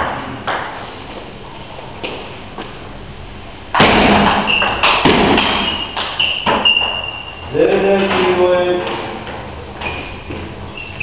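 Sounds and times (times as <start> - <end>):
burst of noise with knocks: 3.7 - 6.7
thin high squeal: 5.7 - 7.5.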